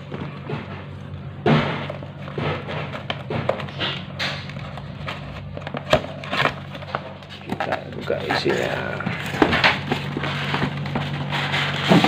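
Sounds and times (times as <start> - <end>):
cardboard box scraping and tapping: 4.6 - 12.0.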